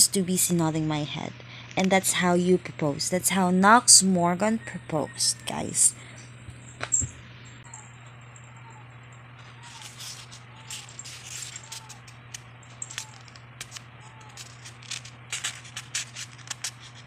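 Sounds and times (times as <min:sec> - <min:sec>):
steady low hum: 0:00.0 - 0:17.0
book pages rustling: 0:09.7 - 0:17.0.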